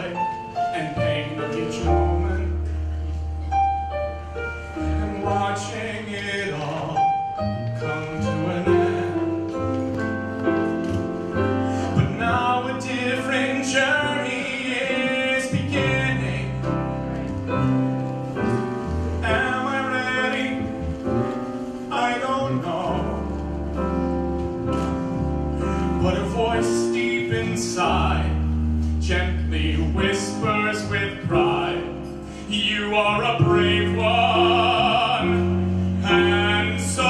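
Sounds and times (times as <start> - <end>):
man singing into microphone: 0.0 - 2.8, 5.0 - 9.4, 11.9 - 16.7, 19.2 - 20.9, 21.9 - 23.4, 26.0 - 28.4, 29.0 - 37.0
piano bass and drums: 0.0 - 37.0.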